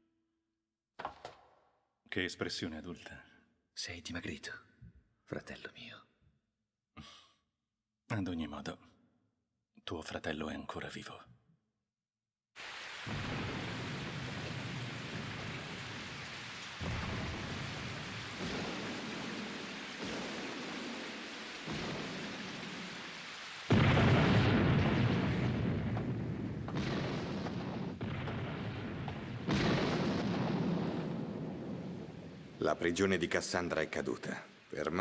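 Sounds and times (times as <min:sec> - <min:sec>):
heavy rain: 0:12.6 - 0:35.0
thunderclaps: 0:13.0 - 0:33.6.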